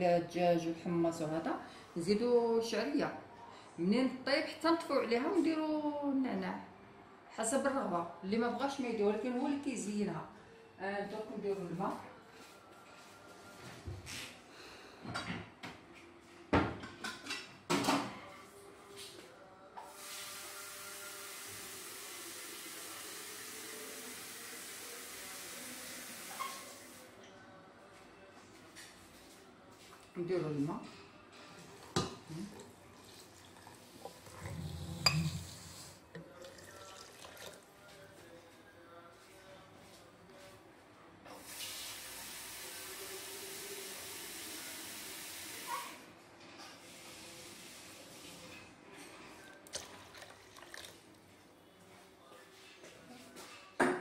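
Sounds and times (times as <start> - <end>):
water pouring into metal pot: 32.5 - 37.7, 49.6 - 51.0.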